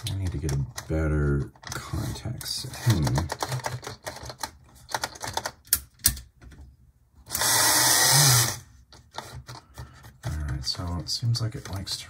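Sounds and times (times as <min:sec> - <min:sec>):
small electric motor whirring: 0:07.3 - 0:08.6.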